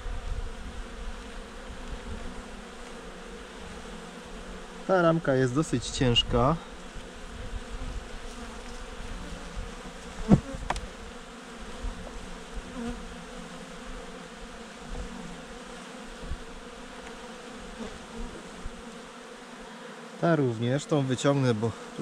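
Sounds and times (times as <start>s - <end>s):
bees humming: 0.0s - 22.0s
sharp knock of hive frames: 9.8s - 10.9s.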